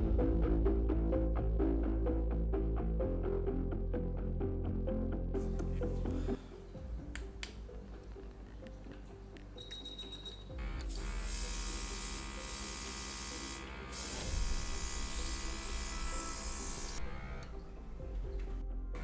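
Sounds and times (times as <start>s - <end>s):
compressor electric buzz: 10.5s - 19.0s
air hissing from airbrush nozzle: 10.9s - 17.0s.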